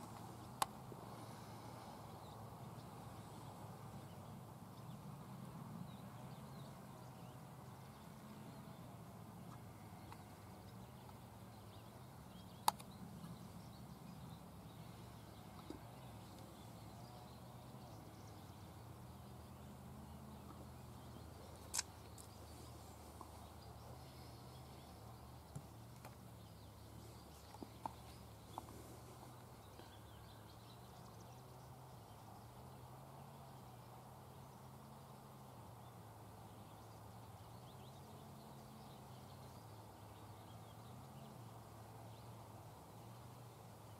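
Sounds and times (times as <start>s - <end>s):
quiet clicks: 9.4s - 11.2s, 12.5s - 13.4s, 15.5s - 16.5s.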